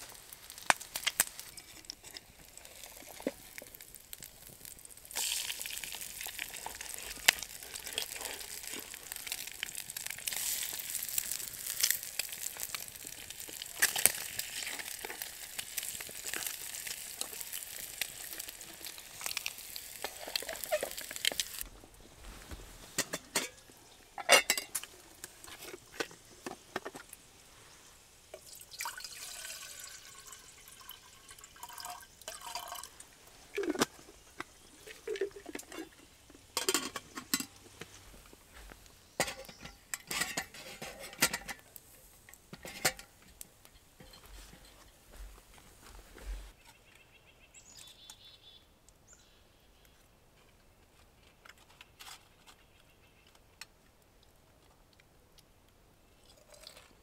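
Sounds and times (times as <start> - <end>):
bacon and eggs sizzling in a pan: 0.0 - 21.7
water pouring into metal kettle: 0.5 - 21.6, 28.4 - 33.9
fork scraping a pan: 39.2 - 41.6.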